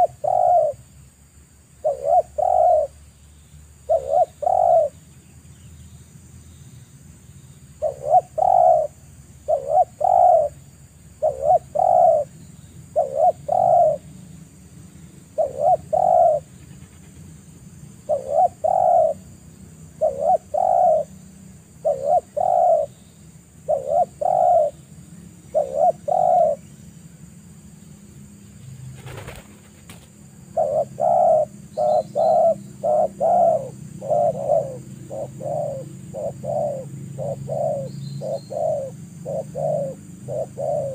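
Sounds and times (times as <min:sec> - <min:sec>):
dove cooing: 0:00.0 - 0:00.8, 0:01.8 - 0:03.0, 0:03.8 - 0:05.0, 0:07.8 - 0:10.6, 0:11.2 - 0:14.1, 0:15.3 - 0:17.2, 0:18.0 - 0:19.3, 0:20.0 - 0:21.1, 0:21.8 - 0:23.0, 0:23.6 - 0:24.8, 0:25.4 - 0:26.7, 0:30.4 - 0:40.9.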